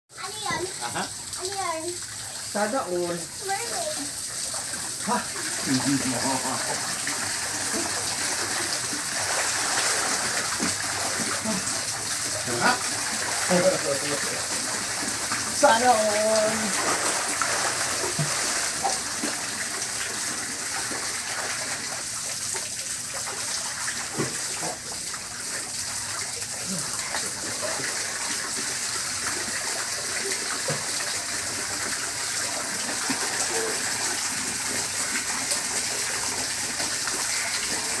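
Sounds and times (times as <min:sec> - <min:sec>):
water pouring into pool: 0:00.2 - 0:38.0
people splashing in water: 0:04.6 - 0:22.0, 0:23.2 - 0:25.0.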